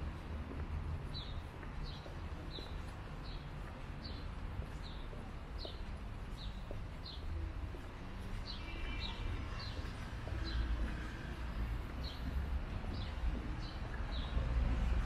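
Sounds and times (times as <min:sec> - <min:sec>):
low rumble of street traffic: 0:00.0 - 0:15.0.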